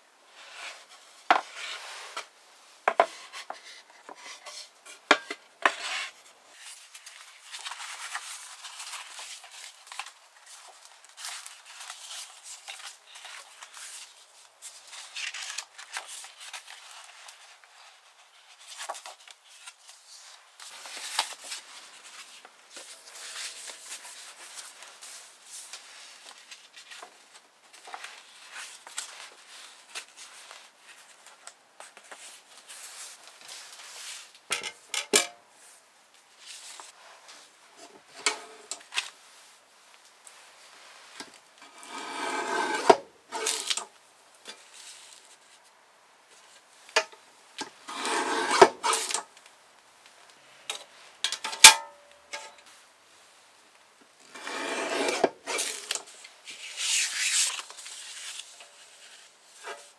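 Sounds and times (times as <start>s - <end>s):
paper rustling and sliding: 0.4s - 2.3s, 2.9s - 34.4s, 40.2s - 44.0s, 47.8s - 49.4s, 54.3s - 59.9s
rubbing scrapes: 41.8s - 43.7s, 47.9s - 49.2s.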